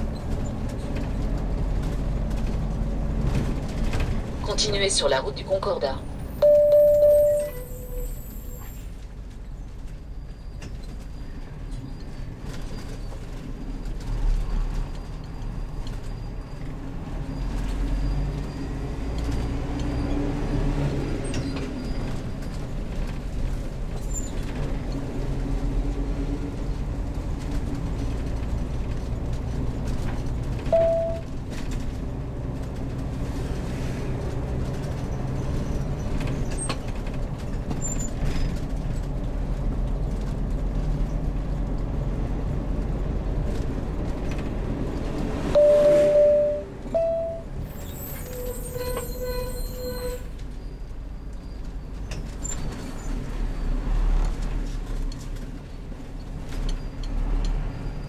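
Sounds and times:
motorhome engine and road rumble: 0.0 - 58.0
short beep: 6.4 - 8.6, 30.7 - 31.2, 45.6 - 47.5.

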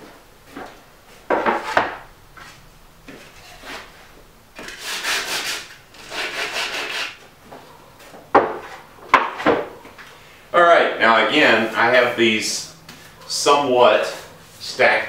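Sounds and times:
sanding block rubbing wood edge: 4.6 - 7.2
plywood panel set down: 8.3 - 9.7.

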